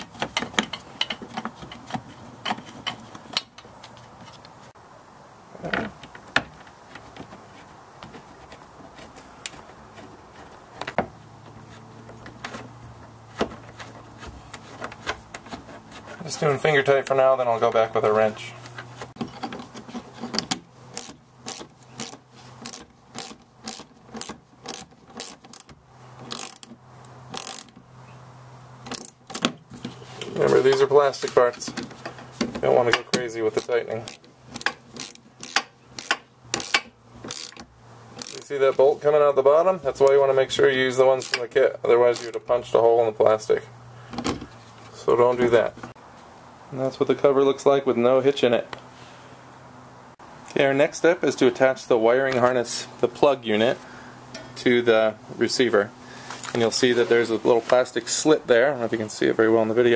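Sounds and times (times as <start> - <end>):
bolts and plastic clips clicking: 0.0 - 4.6, 18.6 - 27.8, 28.8 - 38.8, 41.2 - 42.5
ratchet wrench clicking: 20.9 - 25.7, 26.3 - 26.7, 27.3 - 27.8, 33.5 - 37.6, 38.2 - 38.5.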